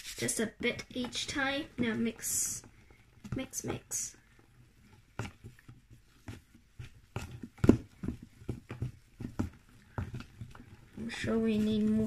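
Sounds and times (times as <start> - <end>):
slime knocks and scrapes: 4.7 - 12.0.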